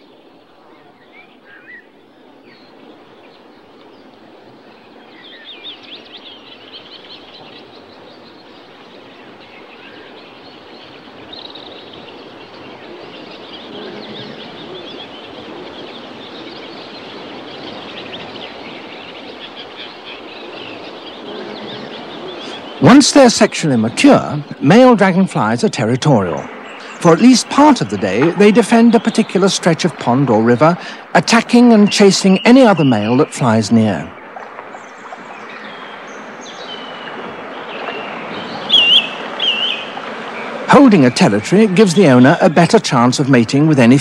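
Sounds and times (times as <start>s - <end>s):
small birds chirping: 0.0s - 44.0s
steady hiss: 21.3s - 34.0s.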